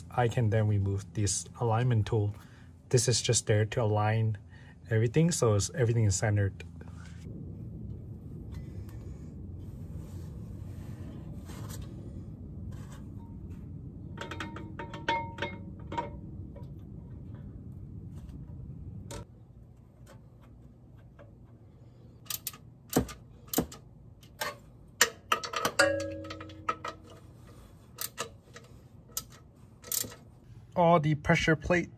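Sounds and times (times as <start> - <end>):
low steady hum: 0.0 - 31.9
metal clinks: 25.3 - 27.2.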